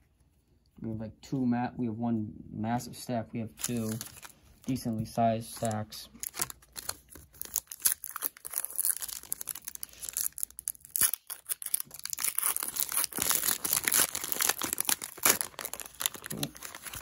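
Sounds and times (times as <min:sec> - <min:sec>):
foil wrapper crinkling: 0:03.6 - 0:17.0.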